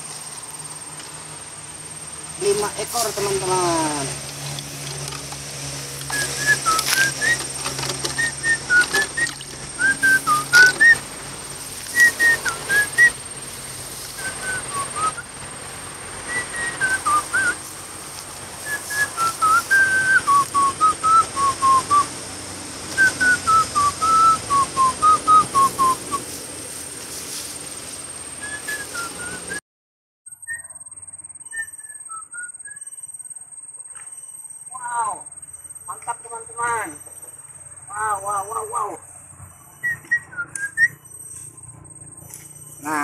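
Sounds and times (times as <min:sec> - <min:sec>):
person whistling a tune: 0:06.1 - 0:11.0, 0:11.9 - 0:13.2, 0:14.2 - 0:15.2, 0:16.3 - 0:17.6, 0:18.6 - 0:22.1, 0:23.0 - 0:26.2, 0:28.4 - 0:29.6, 0:31.4 - 0:33.0, 0:39.8 - 0:41.2.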